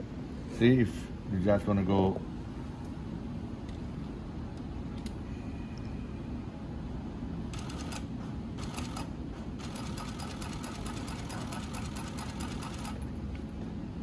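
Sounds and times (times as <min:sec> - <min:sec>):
sewing machine low hum: 0:07.5 - 0:14.0.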